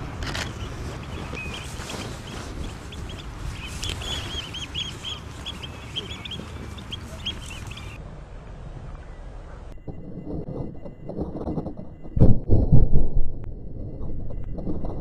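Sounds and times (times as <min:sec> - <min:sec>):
birds sharp piping calls: 0:00.0 - 0:08.0
steady low rumble: 0:00.0 - 0:15.0.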